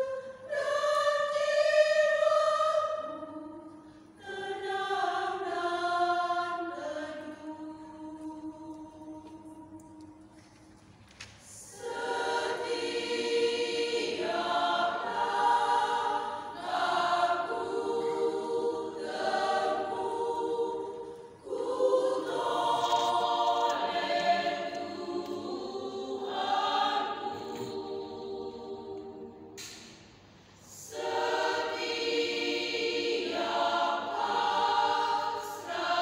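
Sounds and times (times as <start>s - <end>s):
women's choir singing a hymn: 0.0s - 10.4s, 11.4s - 36.0s.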